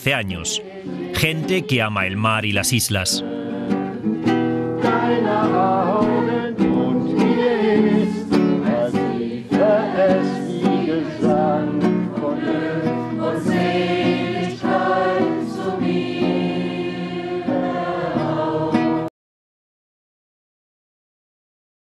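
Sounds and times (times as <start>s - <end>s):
group singing in chorus: 0.5s - 1.2s, 3.2s - 19.1s
strummed acoustic guitar: 3.2s - 16.4s.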